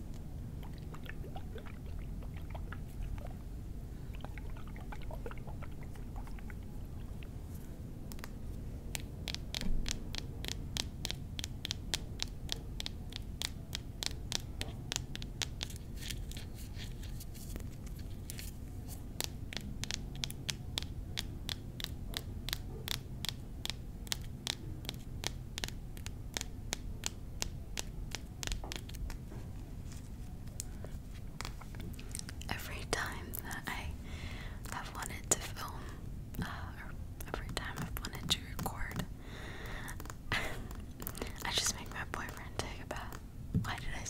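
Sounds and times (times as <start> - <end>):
tapping on small bottles: 37.2 - 43.9.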